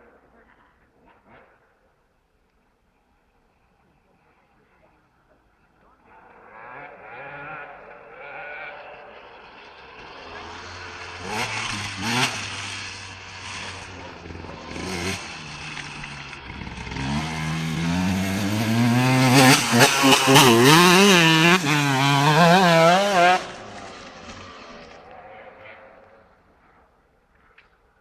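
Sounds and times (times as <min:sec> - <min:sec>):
dirt bike engine revving: 0:06.1 - 0:26.4.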